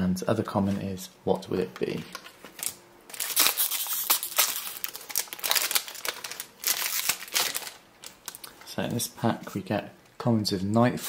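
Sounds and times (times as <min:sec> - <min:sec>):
wrapper crinkling as torn open: 0:02.5 - 0:08.7.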